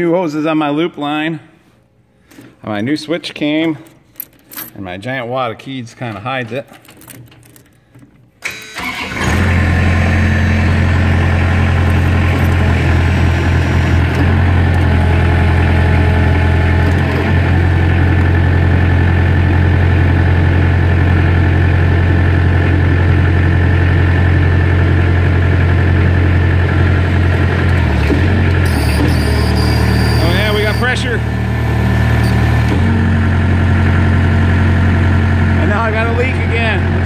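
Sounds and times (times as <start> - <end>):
skid steer engine starting and running: 8.4 - 37.0.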